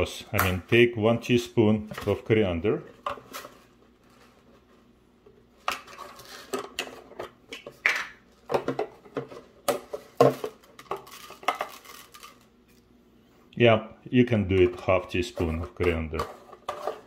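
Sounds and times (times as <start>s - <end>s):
teaspoon scraping plastic jar: 14.7s - 17.0s.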